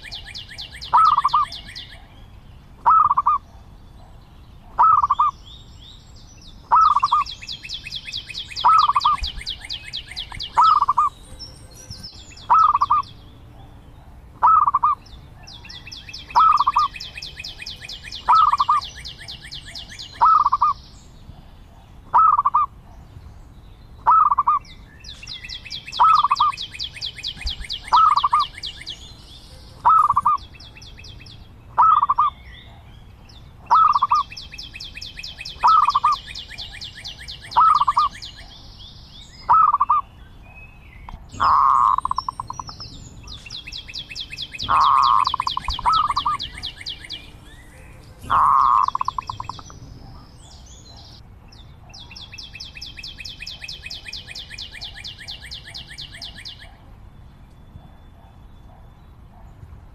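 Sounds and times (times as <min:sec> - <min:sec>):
dove cooing: 0:00.9 - 0:01.7, 0:02.8 - 0:03.5, 0:04.7 - 0:05.3, 0:06.7 - 0:07.3, 0:08.6 - 0:11.1, 0:12.5 - 0:13.0, 0:14.4 - 0:15.0, 0:16.3 - 0:17.2, 0:18.2 - 0:19.0, 0:20.1 - 0:20.8, 0:22.1 - 0:22.7, 0:26.0 - 0:26.6, 0:27.4 - 0:28.6, 0:29.8 - 0:30.4, 0:31.8 - 0:32.4, 0:33.7 - 0:34.3, 0:35.3 - 0:38.2, 0:41.4 - 0:42.8, 0:44.5 - 0:50.6.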